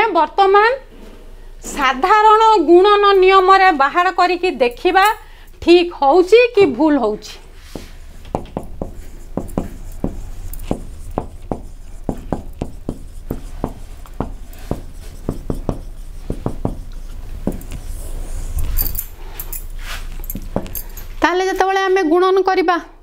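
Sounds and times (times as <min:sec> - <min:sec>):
marker pen on whiteboard: 0:06.6 - 0:18.9.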